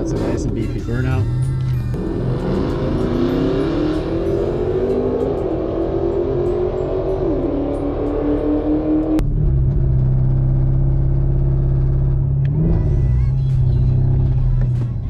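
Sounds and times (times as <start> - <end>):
car engine revving high: 1.9 - 13.0
car engine held at steady revs: 2.0 - 12.9.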